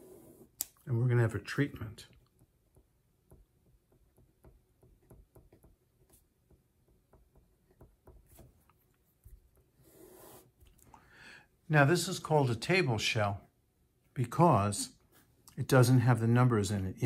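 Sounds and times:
marker pen writing on paper: 2.4 - 10.6.

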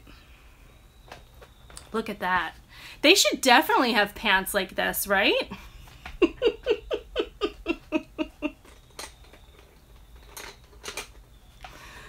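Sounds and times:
high squeaky giggles: 6.2 - 8.8.

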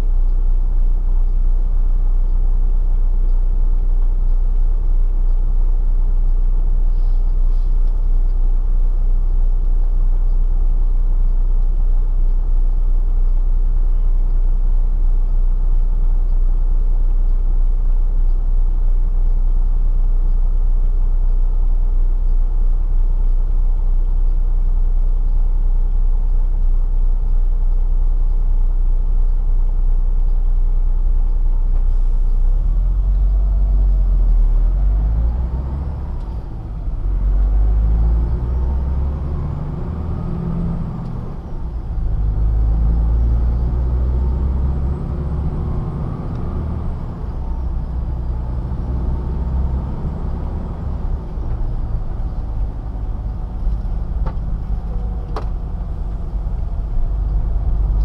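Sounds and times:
truck diesel engine: 31.0 - 58.0.

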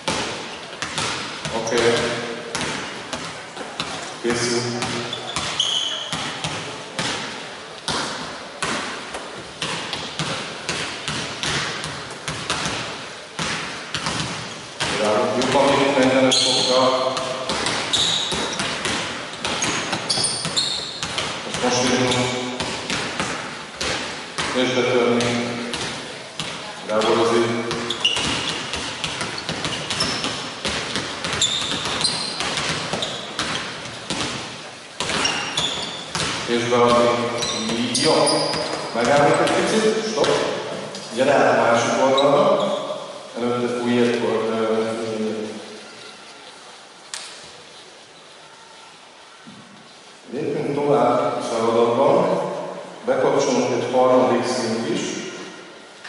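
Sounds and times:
basketballs bouncing on hardwood: 0.0 - 40.6
sneaker squeaks: 0.0 - 43.3.

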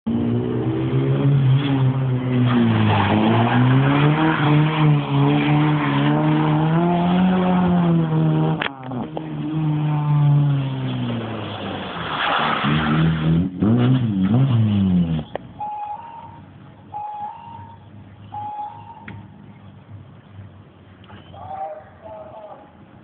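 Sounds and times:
car engine revving: 0.1 - 15.6.

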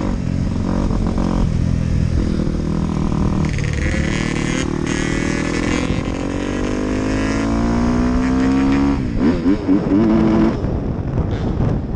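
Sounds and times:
dirt bike engine revving: 2.2 - 10.6.

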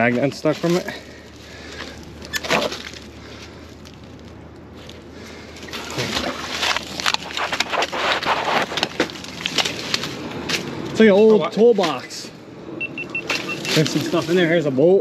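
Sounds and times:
metal toolbox scraping over gravel: 5.7 - 10.2, 13.5 - 14.6.

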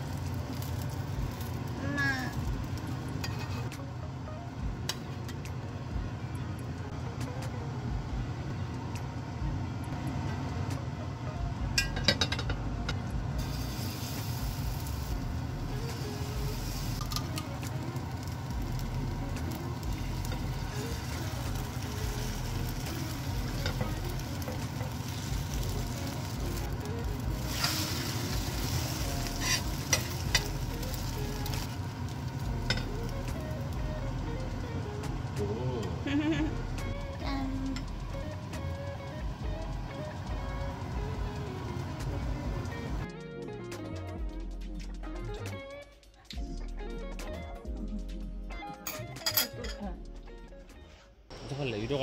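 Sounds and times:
batter sizzling in oil: 0.0 - 3.7, 13.4 - 35.0
metal spatula scraping and tapping: 3.2 - 3.8, 29.4 - 30.5.

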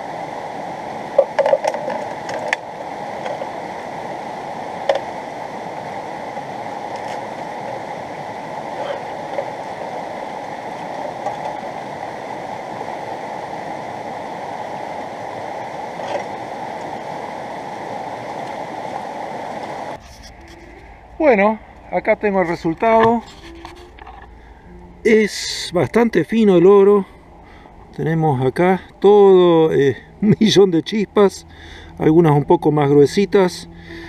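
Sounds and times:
river rushing over rocks: 0.0 - 20.0.

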